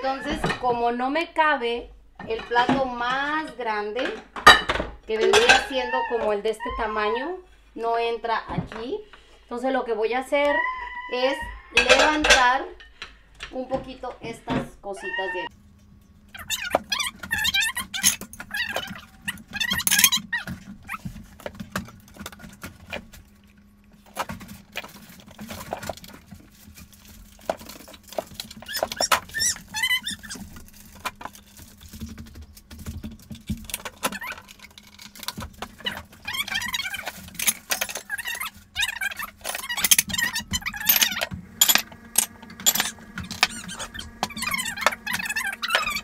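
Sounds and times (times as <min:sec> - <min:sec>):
plates clinking and clattering: 0:02.2 - 0:06.0, 0:11.8 - 0:13.5, 0:39.0 - 0:46.0.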